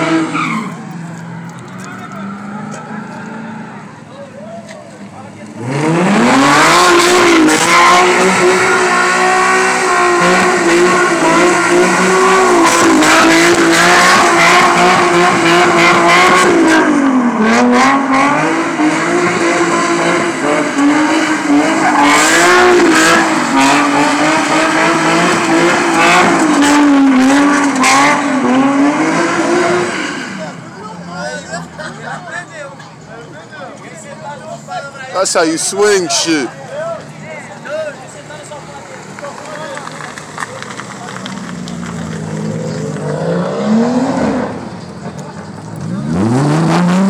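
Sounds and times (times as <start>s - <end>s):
tyres squealing: 0.1s - 1.1s
car engine revving high: 5.4s - 31.0s, 38.1s - 47.0s.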